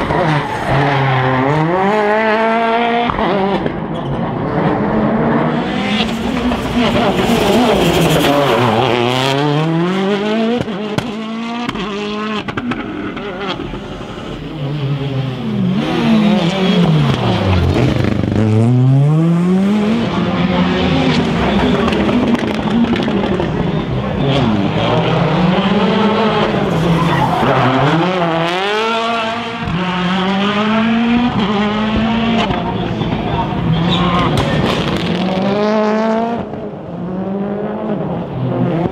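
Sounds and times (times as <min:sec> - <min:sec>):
rally car engine revving: 0:00.0 - 0:38.9
tyres skidding on tarmac: 0:19.8 - 0:30.0.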